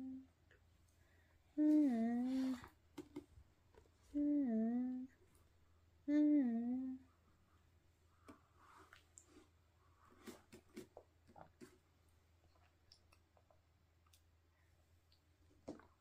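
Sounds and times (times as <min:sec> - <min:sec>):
person humming: 0:00.0 - 0:00.3, 0:01.6 - 0:02.8, 0:04.1 - 0:05.2, 0:06.0 - 0:07.1.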